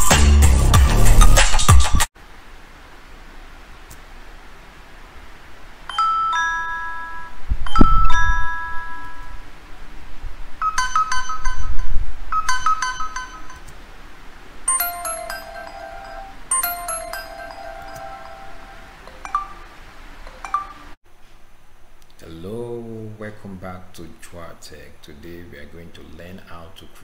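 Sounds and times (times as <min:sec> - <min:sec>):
electronic chime dings: 0:05.9 - 0:09.4, 0:10.6 - 0:13.7, 0:14.7 - 0:21.0.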